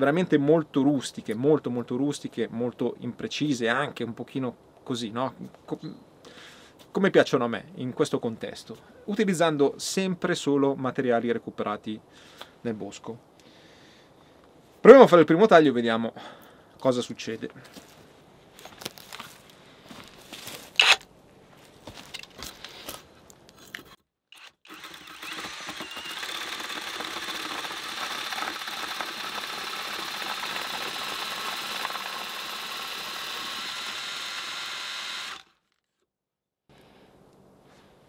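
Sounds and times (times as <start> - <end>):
cutter shaving wood: 20.8 - 21.0, 23.8 - 35.8
drill motor whining: 20.8 - 21.0, 24.3 - 35.6.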